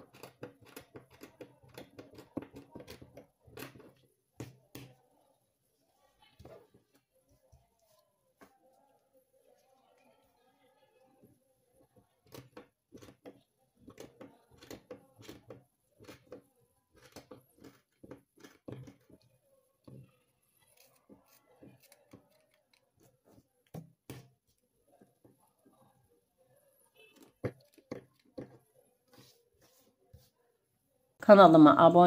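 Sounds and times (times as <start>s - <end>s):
scissors snipping yarn: 0.0s - 5.0s, 12.2s - 19.3s, 19.9s - 24.4s.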